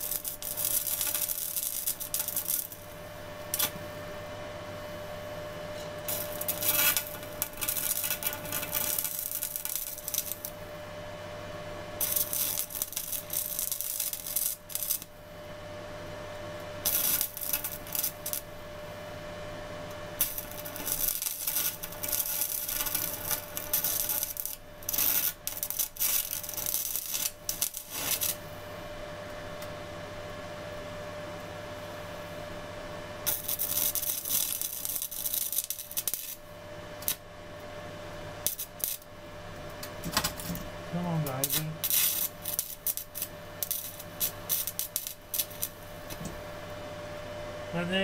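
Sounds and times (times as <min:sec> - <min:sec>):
welding arc crackling: 0:00.0 - 0:04.1, 0:06.0 - 0:15.3, 0:16.6 - 0:18.7, 0:19.9 - 0:28.6, 0:33.2 - 0:37.3, 0:38.1 - 0:39.2, 0:39.8 - 0:46.5.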